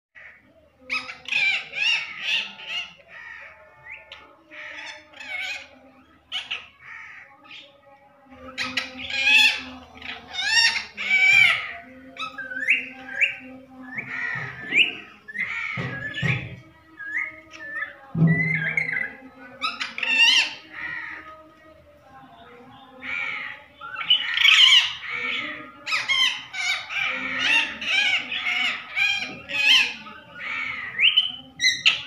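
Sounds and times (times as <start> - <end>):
parakeet shrill calls and chatter: 0.2 - 32.0.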